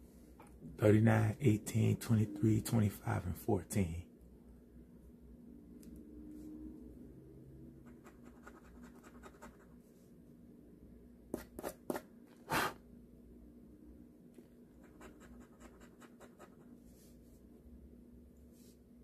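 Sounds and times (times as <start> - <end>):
scratching lottery ticket: 14.8 - 16.7.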